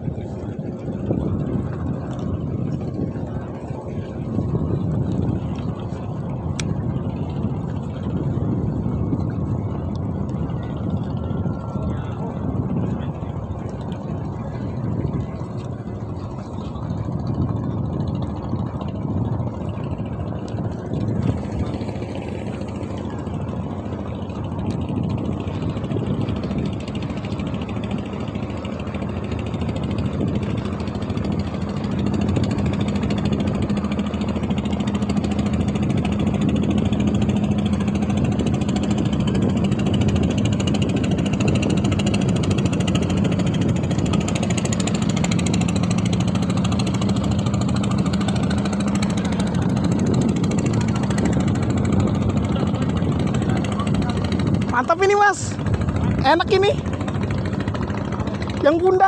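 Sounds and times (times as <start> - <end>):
boat motor running: 0.0 - 59.0.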